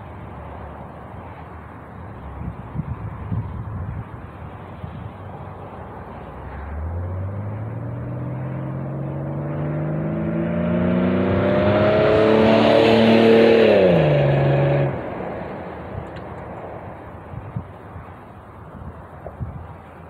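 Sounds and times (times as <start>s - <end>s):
car exhaust accelerating: 5.6s - 20.0s.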